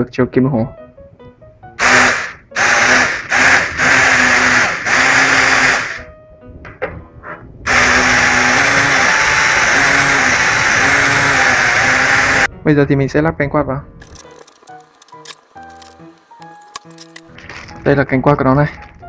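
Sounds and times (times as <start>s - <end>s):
electric motors whining: 1.8s - 6.0s, 7.7s - 12.5s.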